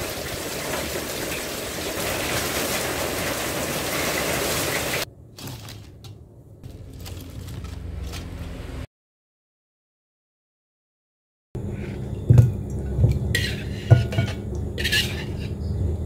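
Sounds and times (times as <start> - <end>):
heavy rain on concrete: 0.0 - 5.1.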